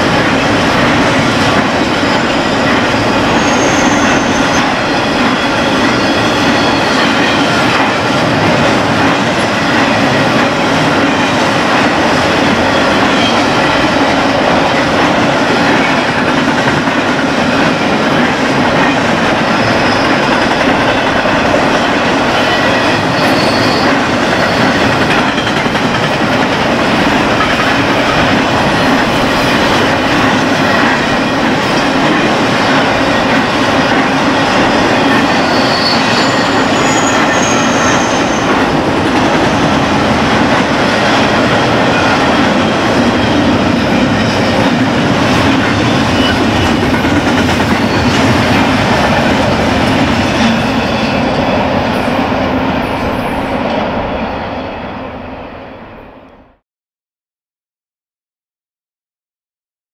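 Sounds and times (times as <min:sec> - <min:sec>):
freight train wheels rumbling on rail: 0:00.0 - 0:56.6
wheels squealing: 0:22.6 - 0:24.8, 0:34.4 - 0:38.6.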